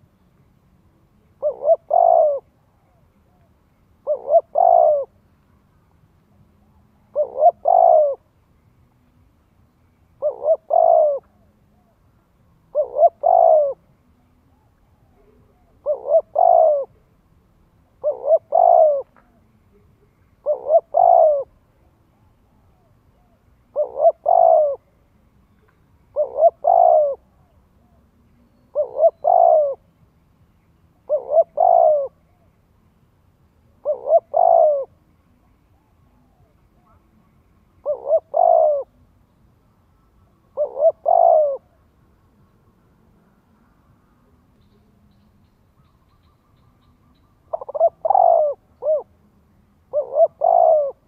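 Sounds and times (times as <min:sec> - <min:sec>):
dove cooing: 0:01.1 - 0:05.3, 0:06.6 - 0:08.3, 0:10.2 - 0:12.0, 0:12.7 - 0:13.9, 0:14.5 - 0:17.1, 0:17.8 - 0:24.9, 0:26.1 - 0:28.1, 0:28.7 - 0:29.8, 0:31.0 - 0:32.5, 0:33.8 - 0:35.0, 0:37.8 - 0:39.0, 0:40.4 - 0:41.8, 0:45.8 - 0:51.0.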